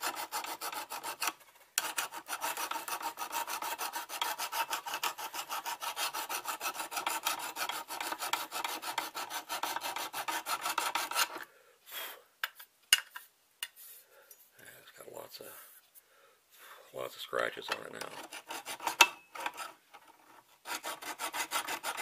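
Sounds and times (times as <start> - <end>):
hand file rasping on steel: 0.0 - 11.4, 17.7 - 22.0.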